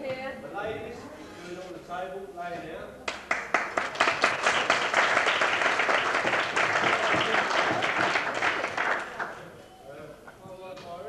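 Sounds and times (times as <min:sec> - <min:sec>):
people applauding: 0:03.1 - 0:09.6.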